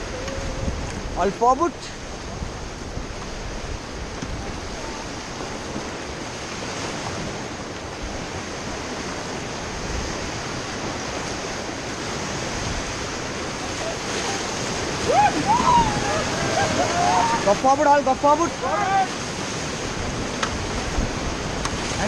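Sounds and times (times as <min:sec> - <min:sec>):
fast river water rushing: 0:00.0 - 0:22.0
wind on microphone: 0:00.0 - 0:22.0.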